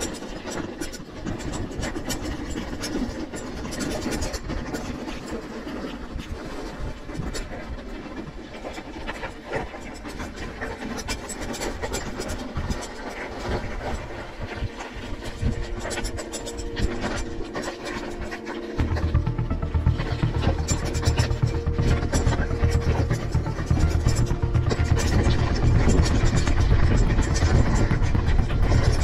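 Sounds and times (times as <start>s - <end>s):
music: 14.2s - 29.0s.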